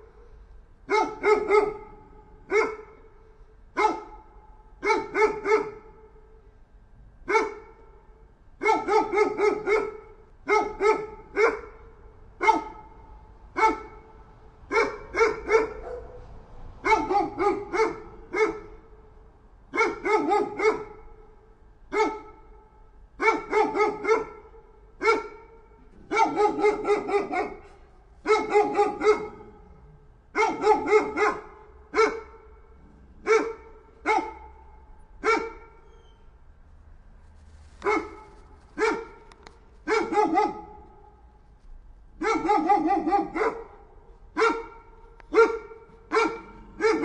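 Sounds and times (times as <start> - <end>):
dog barking: 0.0 - 6.3, 7.2 - 8.0, 8.6 - 19.0, 19.7 - 36.2, 37.8 - 41.3, 42.2 - 47.0.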